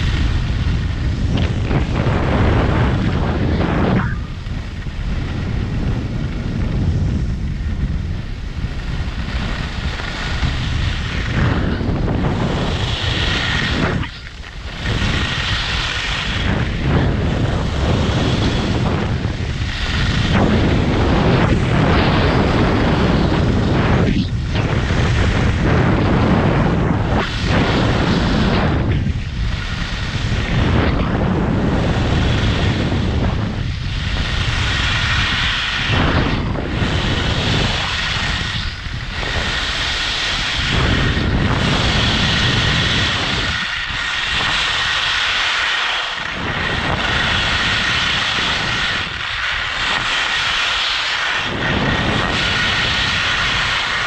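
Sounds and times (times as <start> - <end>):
skis carving on snow: 0.0 - 54.0
wind buffeting microphone: 0.0 - 54.0.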